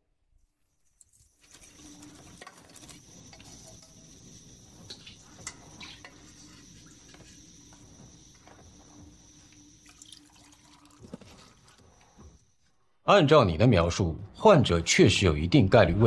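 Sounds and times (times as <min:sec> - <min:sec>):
steady kitchen hum and hiss: 0:00.2 - 0:16.0
utensils and cookware clinking: 0:01.2 - 0:07.4.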